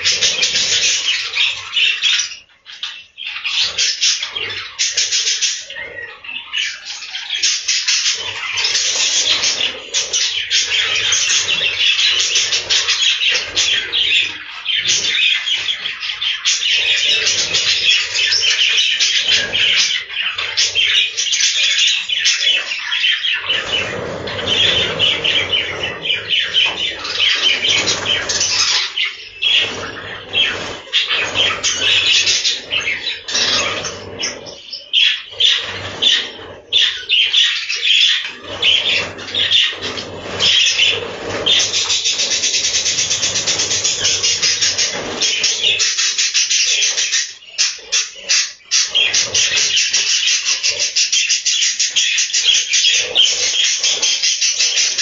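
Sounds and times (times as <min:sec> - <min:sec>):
budgerigars chattering: 0:00.0 - 0:55.0
wings fluttering: 0:07.4 - 0:51.1.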